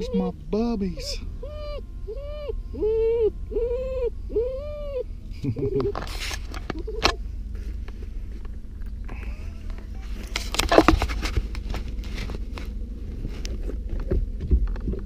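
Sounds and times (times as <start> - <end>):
road noise: 0.0 - 15.0
truck engine rumble: 0.0 - 15.0
knocks and rustles: 9.7 - 15.0.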